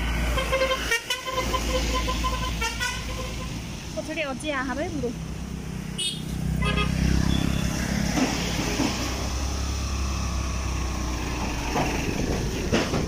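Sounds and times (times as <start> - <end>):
road and wind noise: 0.0 - 13.0
vehicle horn: 0.3 - 3.6, 6.0 - 7.7.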